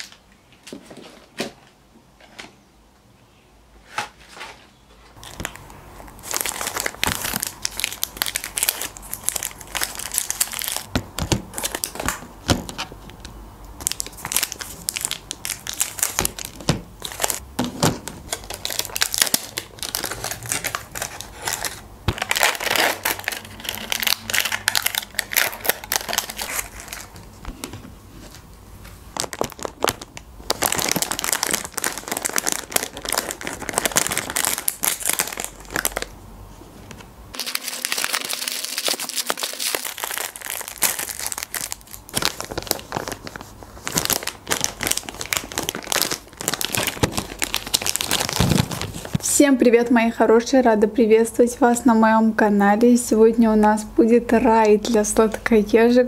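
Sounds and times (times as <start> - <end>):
plastic wrappers crumpling: 5.2 - 10.9, 11.5 - 12.8, 13.8 - 17.4, 18.2 - 28.4, 29.1 - 36.1, 37.4 - 49.2.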